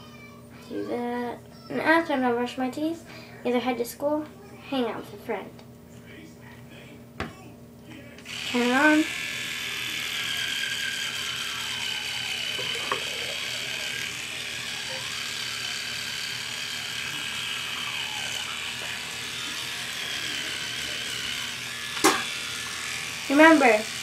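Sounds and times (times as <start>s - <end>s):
electric toothbrush buzzing: 8.2s - 24.0s.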